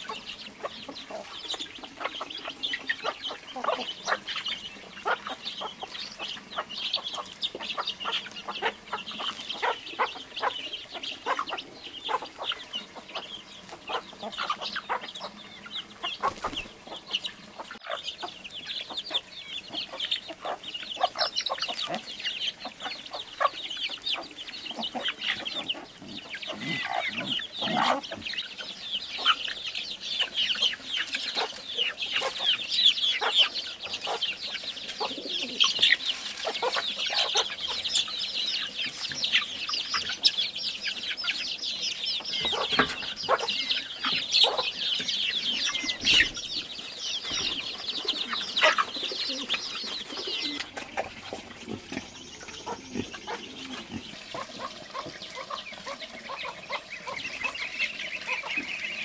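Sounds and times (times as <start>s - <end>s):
chickens clucking: 0.0s - 59.0s
chicks peeping: 0.0s - 59.0s.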